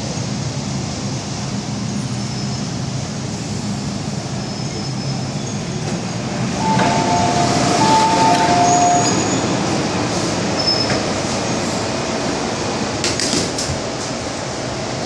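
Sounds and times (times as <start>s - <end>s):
train and station rumble: 0.0s - 15.0s
pair of steady tones: 6.6s - 9.4s.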